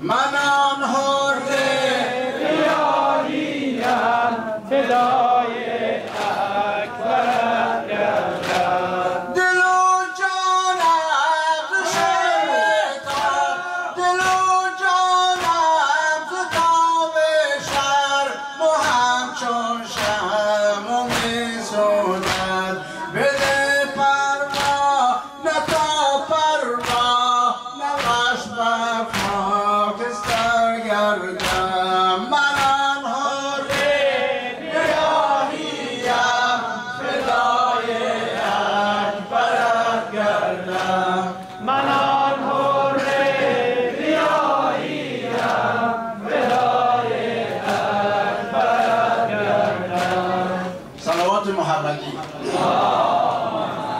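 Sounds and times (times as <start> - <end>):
man chanting into microphone: 0.0 - 2.4, 4.0 - 43.9, 49.2 - 52.6.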